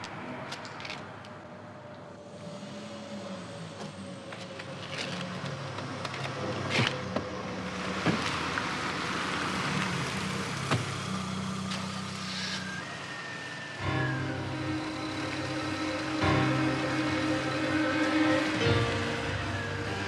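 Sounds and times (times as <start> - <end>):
car engine running: 13.8 - 20.0.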